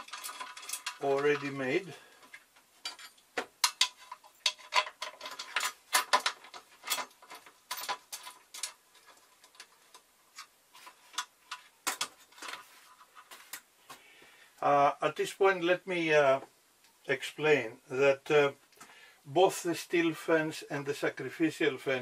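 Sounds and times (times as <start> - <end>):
wood clicking and knocking on metal: 0.0 - 13.6.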